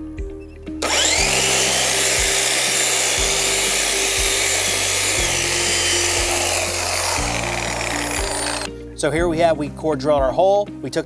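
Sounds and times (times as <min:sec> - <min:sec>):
grinder cutting concrete: 0:00.8 - 0:08.7.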